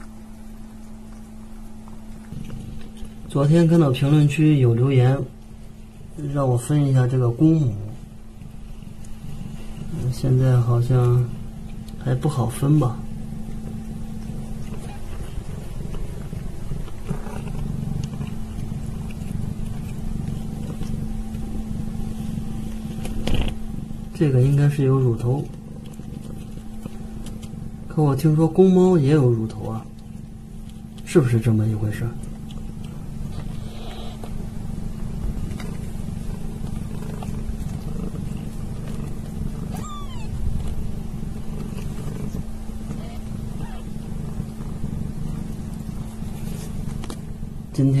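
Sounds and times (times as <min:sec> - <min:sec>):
cat purring: 0:00.0 - 0:48.0
kitten squeaking: 0:33.3 - 0:34.2, 0:39.6 - 0:40.4, 0:42.9 - 0:44.0.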